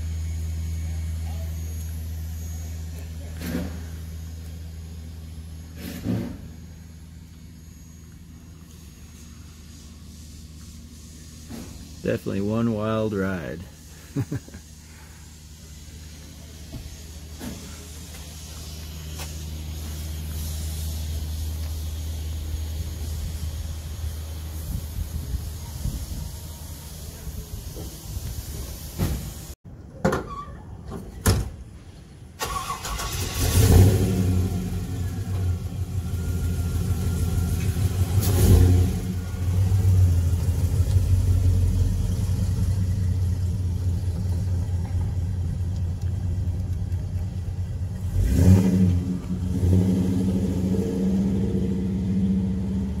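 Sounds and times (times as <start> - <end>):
car engine starting and revving: 32.4 - 53.0.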